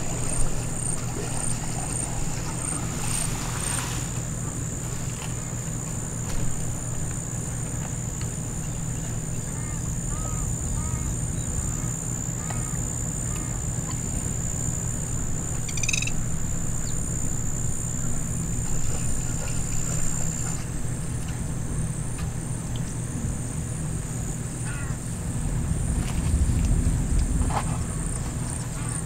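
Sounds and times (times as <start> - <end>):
high-pitched insect drone: 5.4 - 21.0
low rumble: 9.3 - 19.0, 25.0 - 29.0
animal or bird calls: 15.6 - 16.2.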